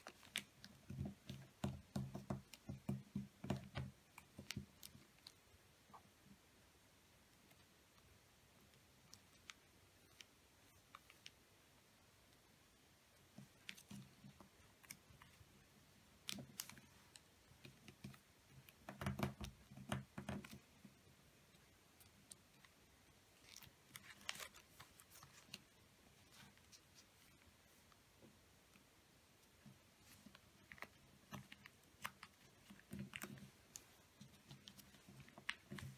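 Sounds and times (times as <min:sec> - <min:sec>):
paper being folded and creased: 0:00.0 - 0:01.6, 0:16.2 - 0:19.6, 0:23.4 - 0:27.9, 0:30.0 - 0:35.9.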